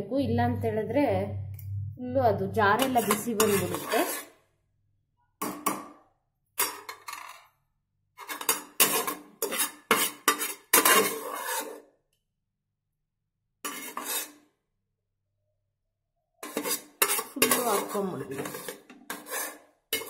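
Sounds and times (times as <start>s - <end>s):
metal spoon scraping pot: 2.7s - 4.5s, 6.6s - 7.6s, 8.2s - 11.9s, 13.6s - 14.5s, 16.4s - 20.0s.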